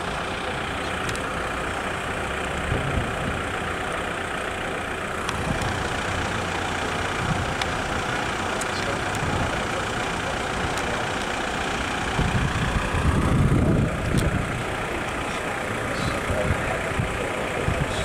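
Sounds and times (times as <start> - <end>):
road traffic with engines running: 0.0 - 18.0
low rumble: 12.2 - 14.9.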